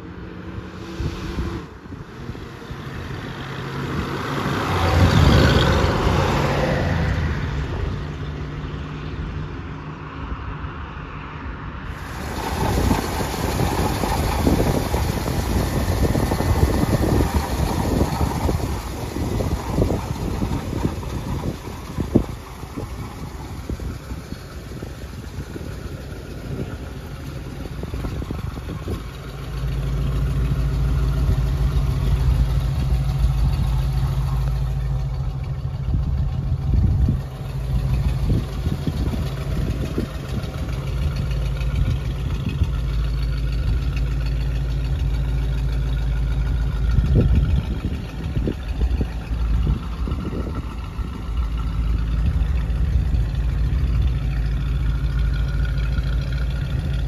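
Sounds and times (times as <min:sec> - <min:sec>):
car engine idling: 0:11.8 - 0:57.0.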